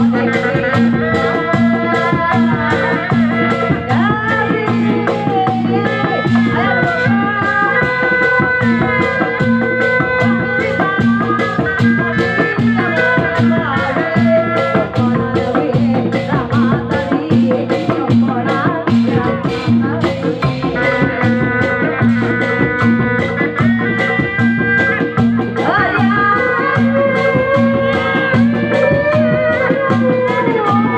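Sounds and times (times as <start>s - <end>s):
repeating drum beat: 0.0s - 30.9s
sustained melodic notes: 19.3s - 25.6s.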